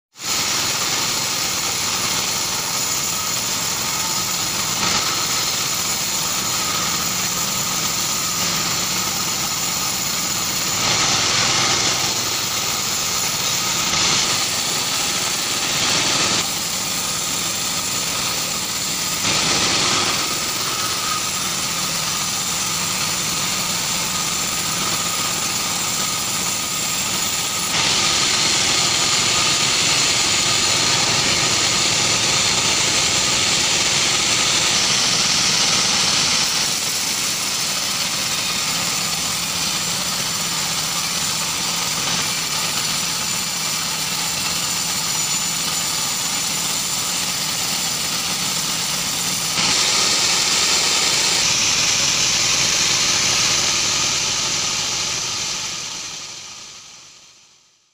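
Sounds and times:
band saw cutting log: 0.1 - 56.8.

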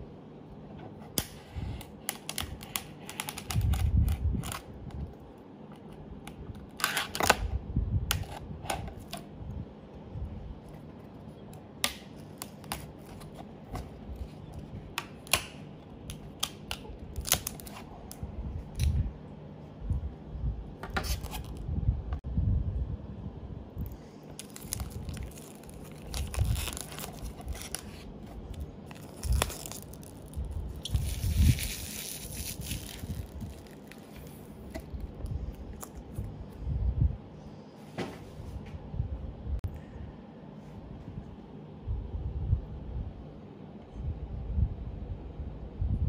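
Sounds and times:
shrink-wrap snipping and crinkling: 1.1 - 5.2, 11.5 - 19.0, 23.8 - 36.2.

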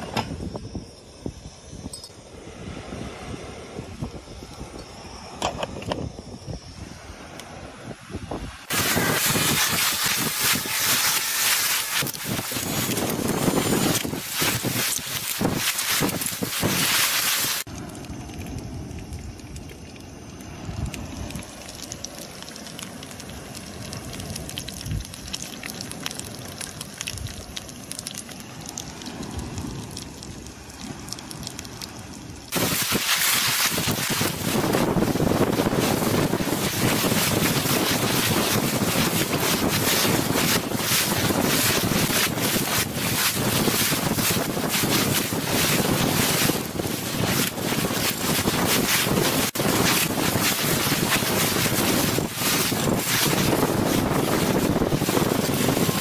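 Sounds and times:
wind buffeting microphone: 0.0 - 17.7, 32.4 - 56.0.

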